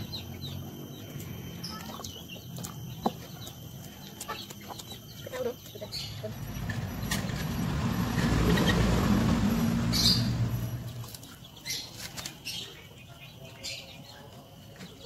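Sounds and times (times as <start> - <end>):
low rumble: 6.3 - 11.1.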